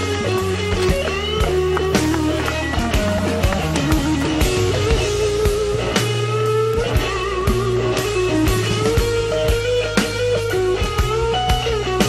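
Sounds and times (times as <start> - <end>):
steady drum beat: 0.7 - 6.2.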